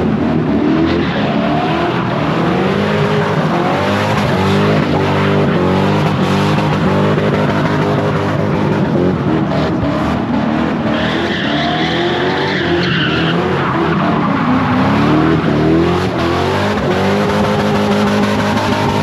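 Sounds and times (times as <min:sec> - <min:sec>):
car engine revving high: 0:00.0 - 0:19.0
tyres squealing on asphalt: 0:00.1 - 0:19.0.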